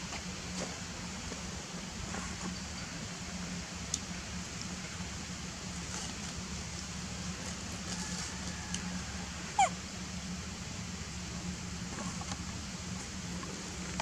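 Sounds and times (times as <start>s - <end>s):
low background hum: 0.0s - 14.0s
monkey squealing: 9.6s - 9.8s.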